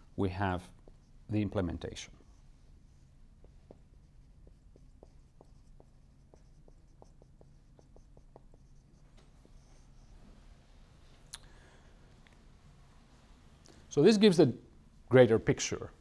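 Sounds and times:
marker writing on whiteboard: 0:00.5 - 0:10.2.

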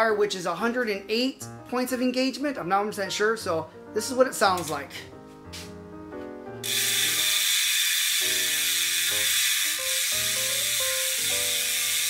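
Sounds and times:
background music: 0:00.0 - 0:07.6, 0:08.2 - 0:12.0
bicycle freehub ratcheting buzz: 0:06.6 - 0:12.0.

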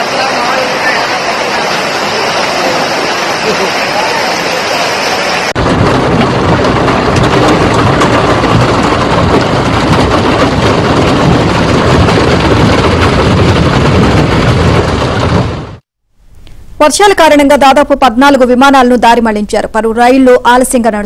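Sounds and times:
heavy rain: 0:00.0 - 0:15.8.

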